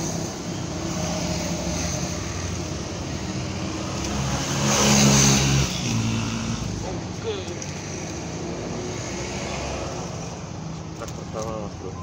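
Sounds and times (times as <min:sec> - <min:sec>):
vehicle passing close: 0:00.0 - 0:07.1.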